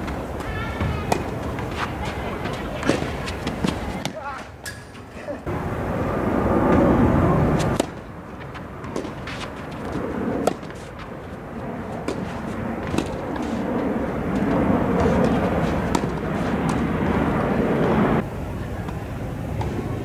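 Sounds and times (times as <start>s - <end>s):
steady low rumble: 5.4s - 20.0s
tennis ball struck by racket: 7.7s - 8.0s, 8.8s - 10.9s, 12.0s - 13.6s, 14.3s - 16.9s.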